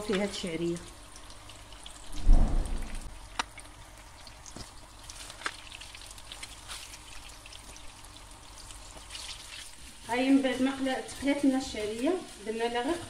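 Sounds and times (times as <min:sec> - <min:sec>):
eggplant sizzling in hot oil: 0:00.0 - 0:02.3, 0:02.9 - 0:13.0
low thump: 0:02.2 - 0:03.1.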